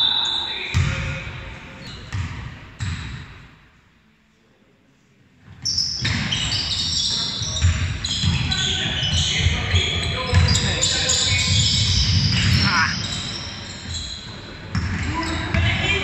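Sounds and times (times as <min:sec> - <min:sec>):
voices and court noise: 0:00.0 - 0:16.0
basketball bouncing on wooden floor: 0:07.6 - 0:10.7.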